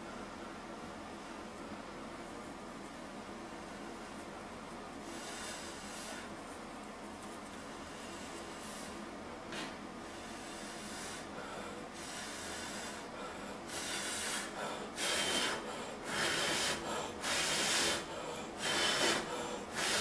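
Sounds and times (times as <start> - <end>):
person blowing hissing puffs: 7.9 - 11.4, 12.0 - 20.0.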